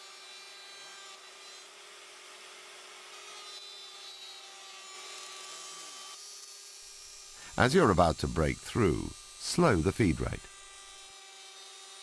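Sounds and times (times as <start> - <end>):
router motor running: 0.0 - 12.0
router cutting wood hiss: 5.2 - 12.0.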